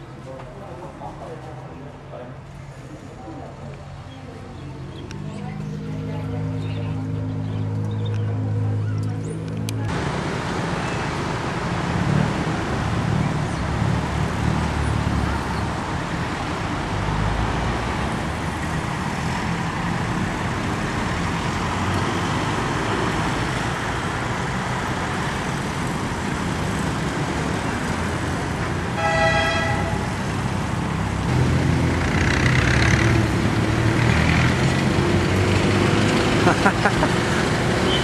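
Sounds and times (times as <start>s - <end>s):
street traffic: 0.0s - 38.0s
car horn: 29.0s - 30.1s.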